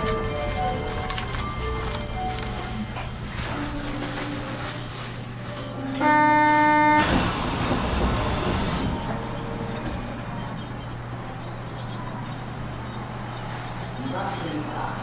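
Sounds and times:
loud buzzer tone: 5.9s - 7.4s.

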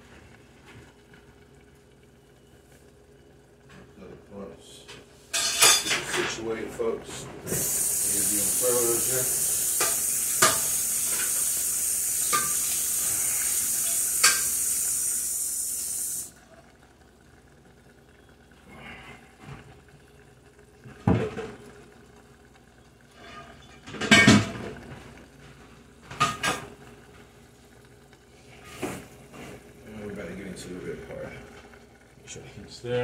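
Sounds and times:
noodles sizzling in a pan: 5.1s - 33.0s
pot clanking: 5.3s - 6.4s, 9.7s - 11.5s, 12.2s - 13.0s, 13.7s - 14.6s, 23.2s - 24.6s.

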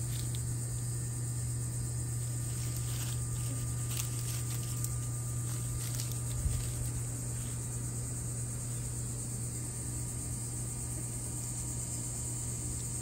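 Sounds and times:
rustles and scrapes in dry leaves: 0.0s - 0.4s, 2.1s - 7.8s
high insect drone: 0.0s - 13.0s
steady low hum: 0.0s - 13.0s.

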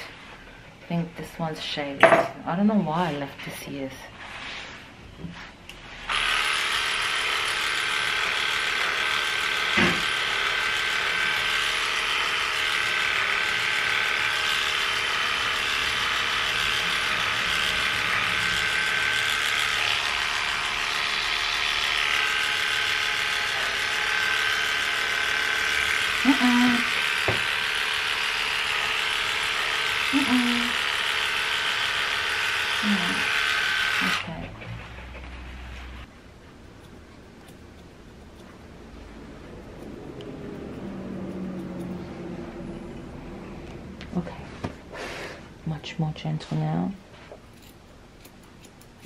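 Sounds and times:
electric clippers humming: 6.0s - 35.8s, 39.6s - 42.1s.

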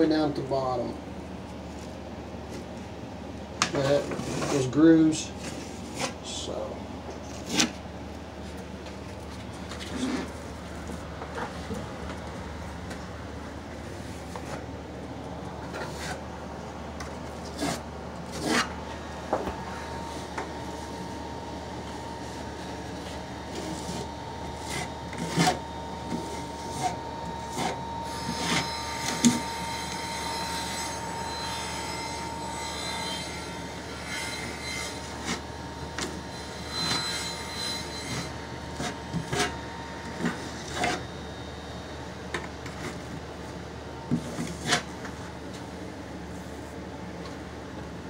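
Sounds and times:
trowel scraping across tile: 3.9s - 4.7s, 44.2s - 44.9s.

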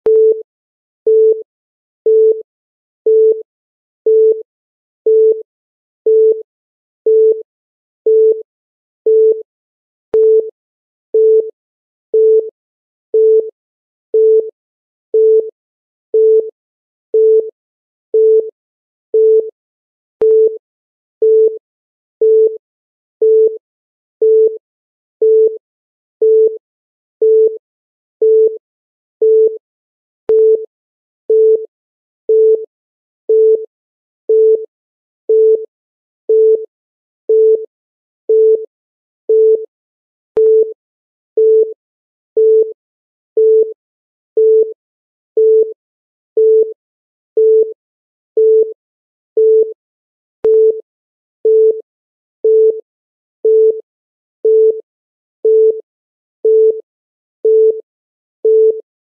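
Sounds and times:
low electronic timer beeps: 0.1s - 0.4s, 1.1s - 1.4s, 6.1s - 6.4s, 8.1s - 8.4s, 10.2s - 10.5s, 20.2s - 20.6s, 22.2s - 22.6s, 30.3s - 30.7s, 33.3s - 33.7s, 34.3s - 34.7s, 35.3s - 35.7s, 36.3s - 36.7s, 37.3s - 37.7s, 38.3s - 38.7s, 39.3s - 39.7s, 40.4s - 40.8s, 41.4s - 41.8s, 42.4s - 42.8s, 43.4s - 43.8s, 44.4s - 44.8s, 45.4s - 45.8s, 46.4s - 46.7s, 47.4s - 47.8s, 48.4s - 48.8s, 49.4s - 49.8s, 50.4s - 50.8s, 51.5s - 51.8s, 52.4s - 52.8s, 53.4s - 53.8s, 54.4s - 54.8s, 55.4s - 55.8s, 56.4s - 56.8s, 57.4s - 57.8s, 58.4s - 58.8s.

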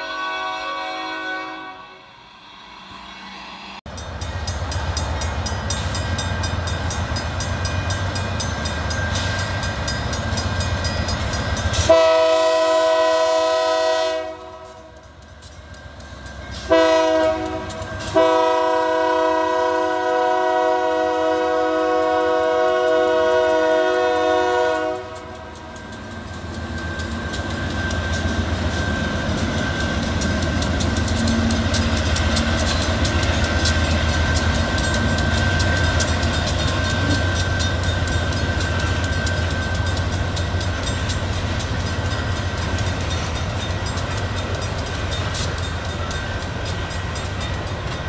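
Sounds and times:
train air horn blasts: 0.0s - 2.3s, 11.8s - 15.0s, 16.6s - 25.6s
locomotive engine rumble: 22.6s - 48.0s.

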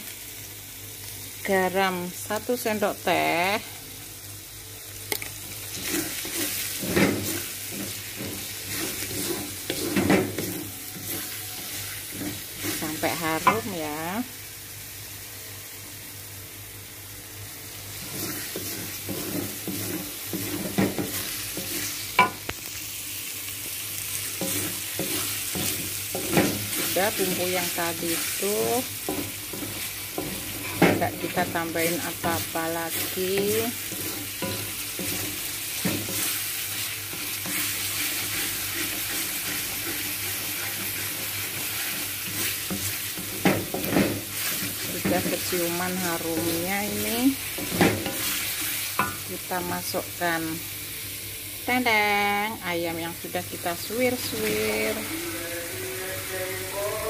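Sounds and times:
spatula scraping in a wok: 5.5s - 13.8s, 17.9s - 22.4s, 24.1s - 49.9s, 53.7s - 55.5s.

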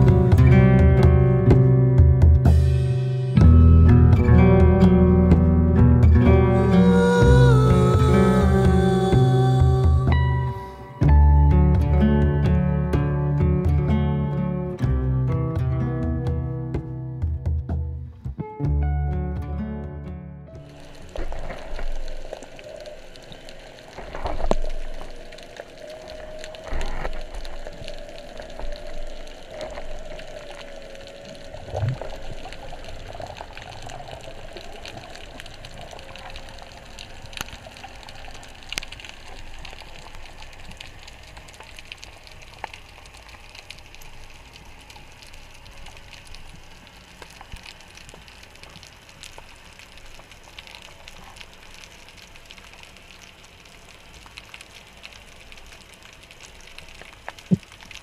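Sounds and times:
underwater water noise: 0.0s - 13.2s, 20.5s - 58.0s
sharp clicks and crackles: 20.6s - 58.0s.

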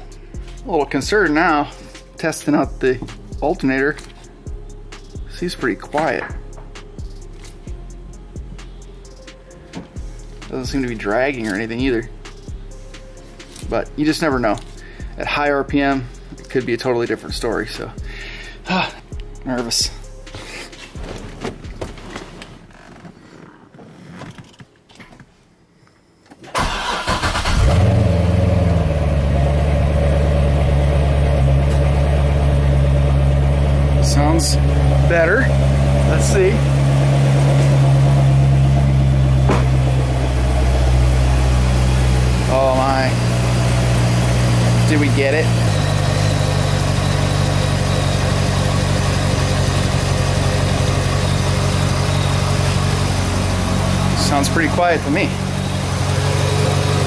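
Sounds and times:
starter cranking engine: 26.5s - 28.4s
car engine idling: 26.6s - 57.0s.

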